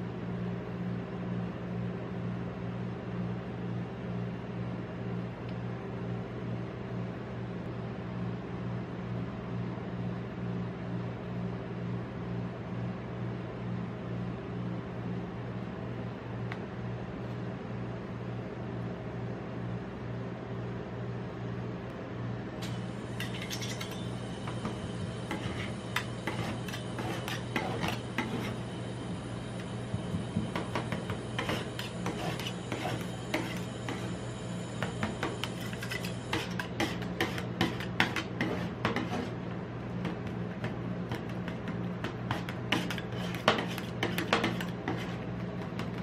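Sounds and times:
steady low hum: 0.0s - 46.0s
metal spatulas chopping and scraping: 23.2s - 28.6s, 30.6s - 34.1s, 35.1s - 39.4s, 40.2s - 46.0s.

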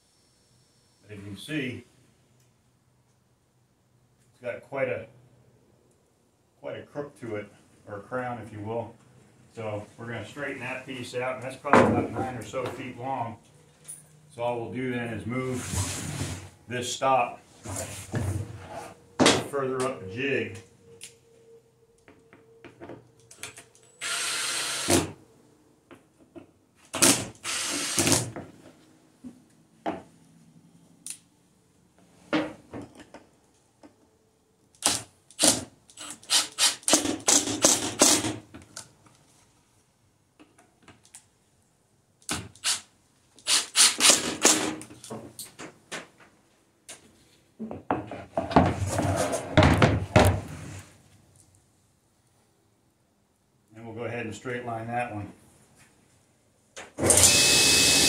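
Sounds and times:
cordless drill driving screws: 24.0s - 25.1s, 27.0s - 28.3s, 34.8s - 38.2s, 42.3s - 44.7s, 57.0s - 58.0s.

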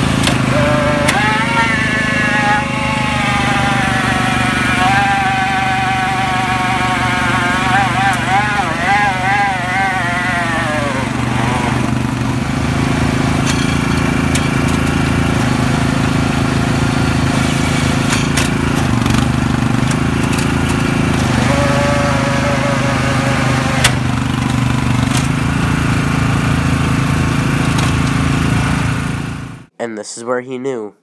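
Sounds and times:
high whine: 0.0s - 12.5s
tire spinning on wet wood: 0.0s - 29.6s
riding mower engine running: 0.0s - 29.7s.

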